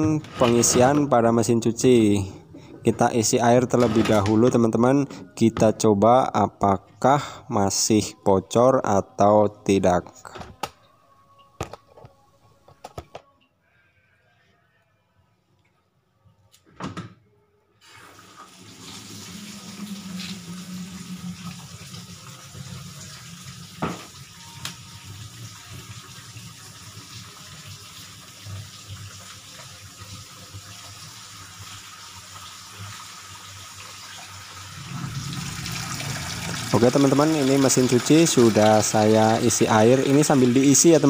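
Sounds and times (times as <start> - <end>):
water running from tap into tub: 17.8 - 41.0.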